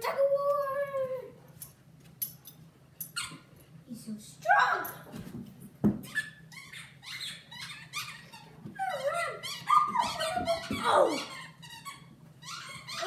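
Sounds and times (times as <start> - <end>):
dog squeaky cries: 3.1 - 3.5, 6.0 - 13.0.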